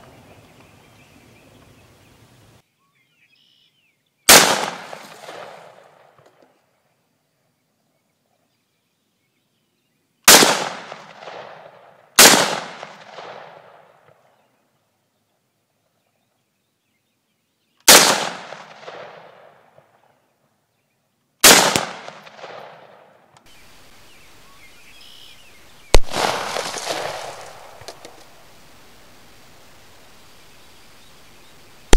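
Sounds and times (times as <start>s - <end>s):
background hiss: 0.0s - 31.9s
rifle shots with echo: 4.3s - 6.2s, 10.3s - 14.2s, 17.9s - 19.9s, 21.4s - 23.2s, 25.9s - 28.0s.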